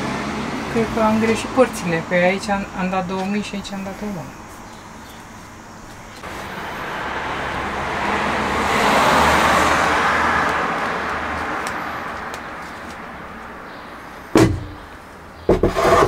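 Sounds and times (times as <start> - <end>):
vehicle passing: 0.0 - 15.4
cabinet thump: 14.4 - 14.8.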